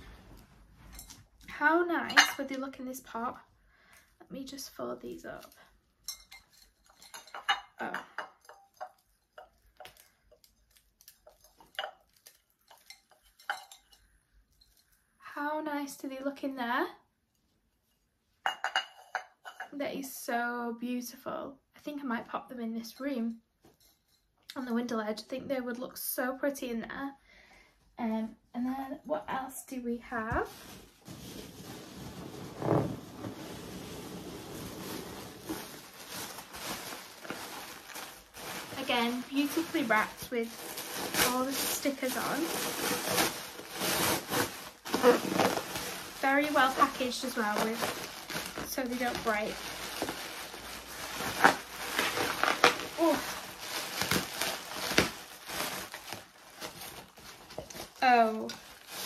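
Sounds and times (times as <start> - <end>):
dried stems crackling and tapping: 5.4 - 13.9, 35.4 - 59.0
packaging rustling and crinkling: 9.0 - 13.2, 30.1 - 59.0.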